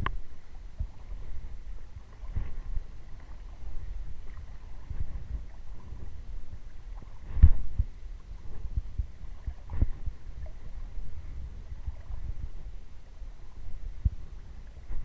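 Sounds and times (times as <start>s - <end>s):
wind rumble on microphone: 0.0s - 15.0s
footsteps wading in water: 0.8s - 15.0s.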